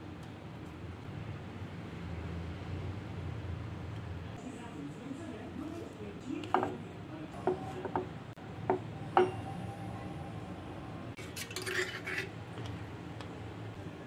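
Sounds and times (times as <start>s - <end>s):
steel utensils clinking: 11.2s - 12.4s.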